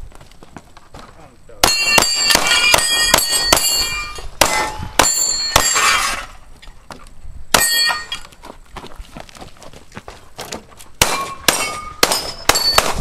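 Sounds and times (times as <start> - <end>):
pistol shots: 1.6 - 5.9, 11.0 - 13.0
bullets clanging on steel plates: 1.6 - 6.4, 7.6 - 8.3, 11.0 - 13.0.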